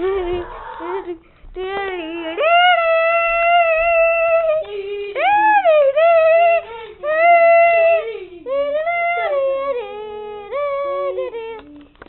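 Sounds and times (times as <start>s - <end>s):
child wailing: 0.0s - 1.1s.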